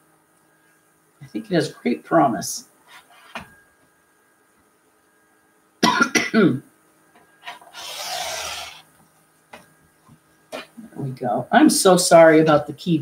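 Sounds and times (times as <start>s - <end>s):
person coughing: 5.8s - 6.6s
rotary cutter rasping through fabric: 7.5s - 8.9s.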